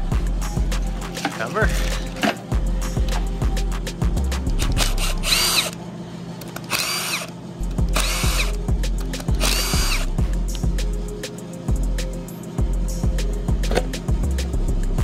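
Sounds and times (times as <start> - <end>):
background music: 0.0 - 15.0
cordless driver motor whine: 4.6 - 5.8, 6.4 - 10.6.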